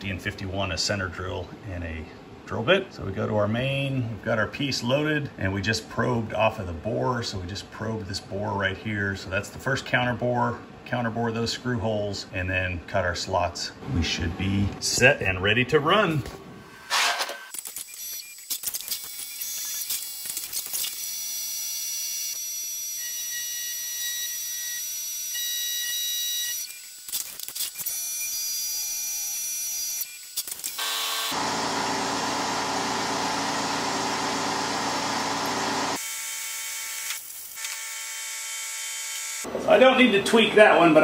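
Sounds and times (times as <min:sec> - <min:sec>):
tools cutting metal: 0:16.9 - 0:31.6, 0:34.9 - 0:39.5
milling machine spindle whine: 0:30.8 - 0:36.1.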